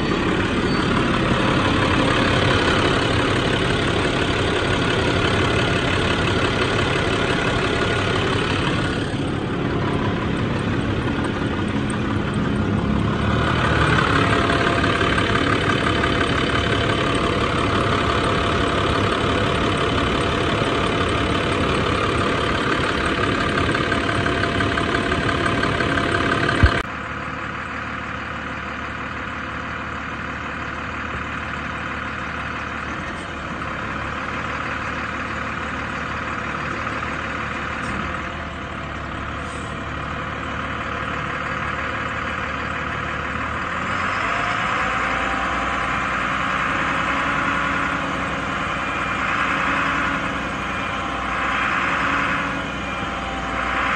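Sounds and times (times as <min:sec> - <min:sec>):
steady whine: 0:00.0 - 0:26.9
diesel truck engine idling: 0:00.0 - 0:53.9.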